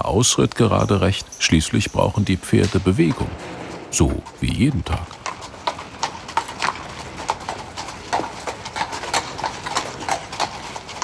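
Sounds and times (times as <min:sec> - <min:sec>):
horse hooves clip-clopping: 0:00.0 - 0:11.0.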